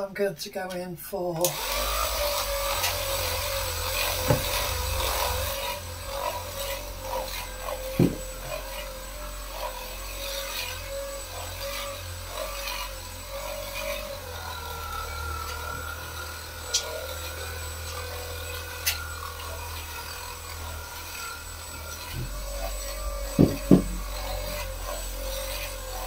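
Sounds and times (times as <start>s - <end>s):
electric scrubber whine: 1.4s - 26.0s
pad rubbing over tiles: 3.6s - 14.8s
sharp knocks: 4.2s - 5.0s, 7.9s - 8.6s, 23.3s - 24.6s.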